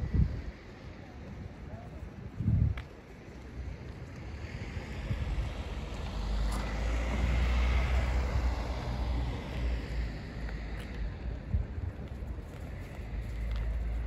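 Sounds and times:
car passing by: 4.1s - 11.5s.

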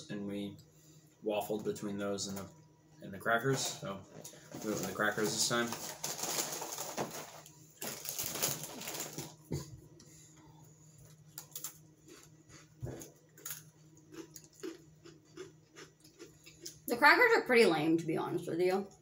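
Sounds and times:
faint low hum: 0.0s - 19.0s
crackers crunching: 4.2s - 9.5s, 11.0s - 16.9s
cracker box rustling: 4.5s - 9.4s.

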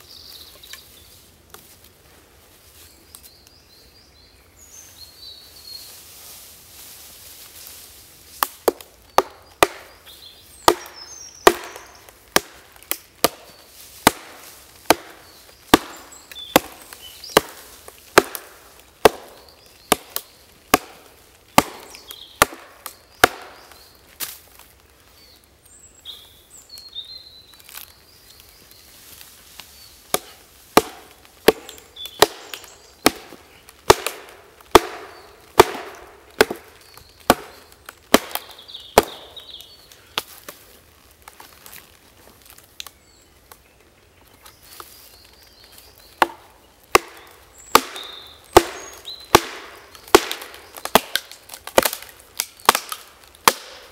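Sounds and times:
hatchet chopping into log: 8.7s - 9.9s, 10.7s - 13.4s, 14.0s - 16.0s, 16.6s - 17.6s, 18.2s - 21.0s, 21.6s - 23.6s, 30.1s - 36.7s, 37.3s - 39.2s, 46.2s - 52.0s, 52.7s - 53.8s.

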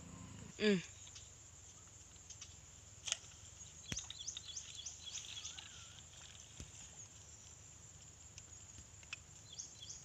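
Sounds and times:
outdoor background noise: 0.0s - 10.0s
bird chirping: 3.6s - 6.0s, 9.4s - 10.0s.

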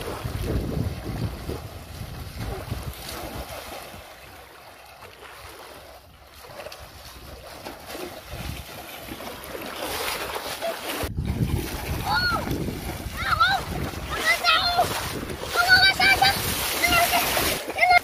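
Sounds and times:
wind rumble on microphone: 0.0s - 4.1s, 6.0s - 8.8s, 11.0s - 17.6s
water sloshing from wading: 0.0s - 18.0s.

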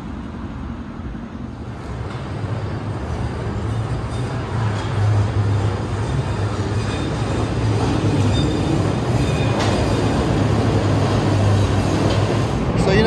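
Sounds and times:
elevated train running: 0.0s - 13.0s
wheel squeals: 3.7s - 10.3s.

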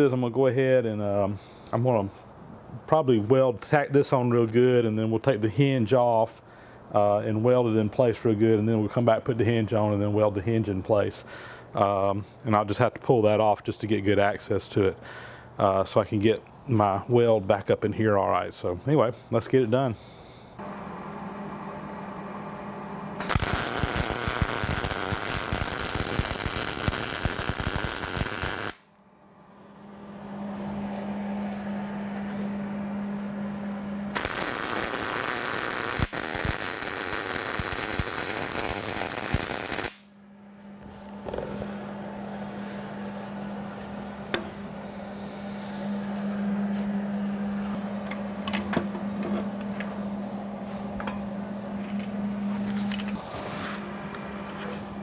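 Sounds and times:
steady low hum: 14.3s - 28.3s, 28.9s - 55.0s
welding arc buzzing: 23.1s - 29.0s, 34.1s - 40.2s.

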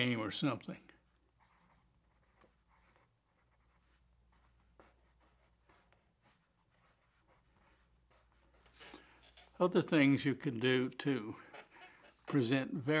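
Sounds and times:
pen scratching on paper: 1.3s - 9.6s.

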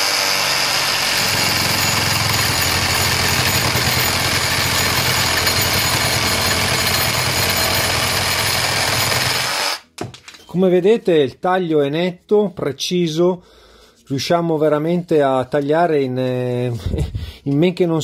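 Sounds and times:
reciprocating saw cutting wood: 0.0s - 7.0s.

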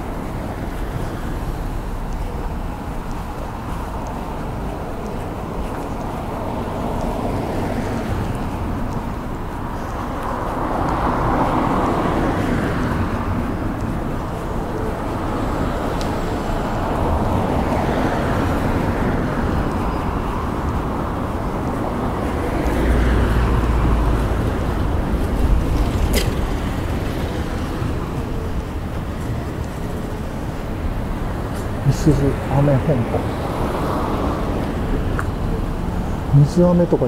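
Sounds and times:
cars passing: 0.0s - 37.0s.

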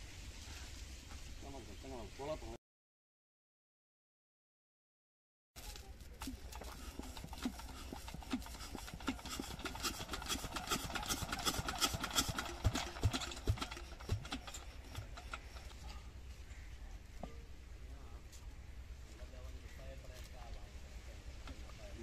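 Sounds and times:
diesel engine clattering: 6.2s - 16.4s
heavy engine thumps: 9.1s - 15.6s.

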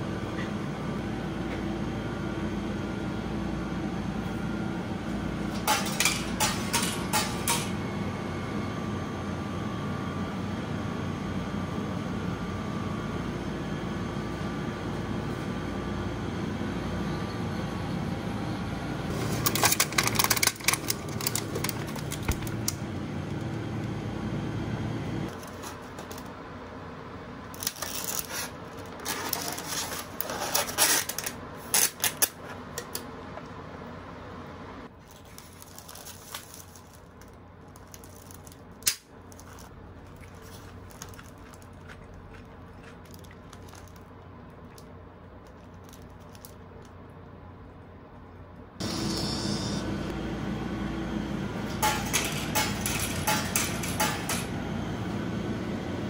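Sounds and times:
vending machine hum: 0.0s - 56.0s
vending machine clicks and clatter: 5.5s - 7.8s, 19.1s - 22.8s, 51.7s - 54.5s
plastic wrapping crinkling: 19.1s - 22.8s, 35.0s - 47.0s.

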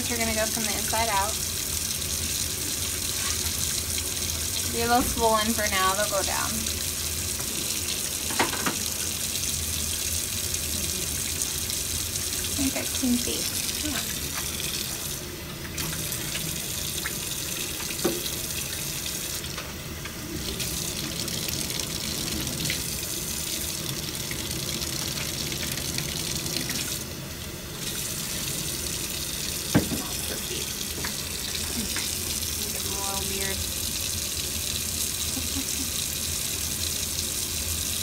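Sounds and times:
tap water running into sink: 0.0s - 38.0s
knock: 29.7s - 30.0s.

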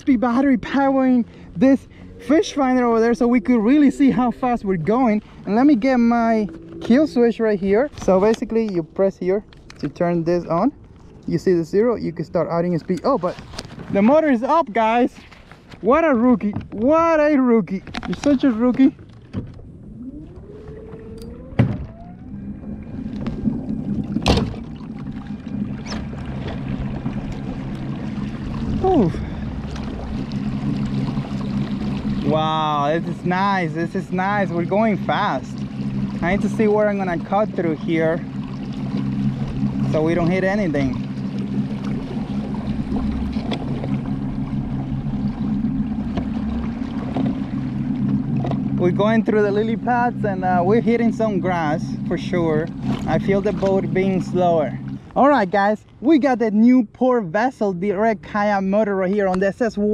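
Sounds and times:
water rushing along hull: 0.0s - 59.9s
small water splashes: 17.8s - 55.2s
electric motor whine and hum: 19.6s - 55.2s.

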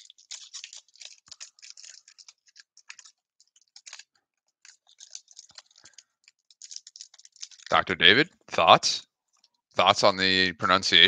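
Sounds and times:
foil wrapper crinkling: 0.0s - 7.9s.

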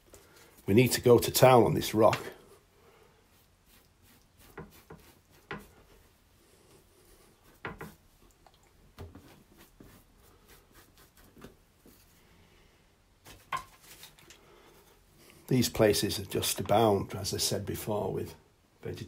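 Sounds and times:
brush dabbing and scrubbing paint: 0.1s - 12.3s.

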